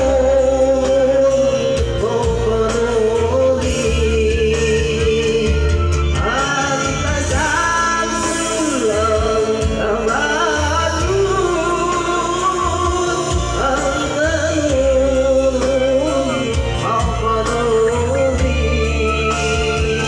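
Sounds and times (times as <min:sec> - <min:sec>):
held bass notes: 0:00.0 - 0:20.0.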